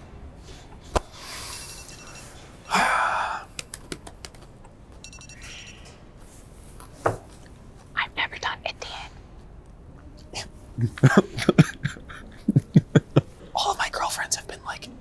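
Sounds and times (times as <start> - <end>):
soft breathing hiss: 0.3 - 3.8, 5.4 - 9.6.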